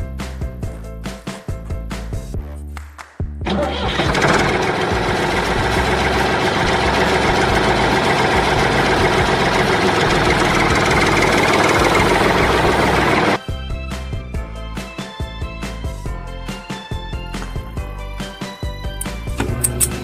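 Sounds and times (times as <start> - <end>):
tractor engine idling: 3.5 - 13.4.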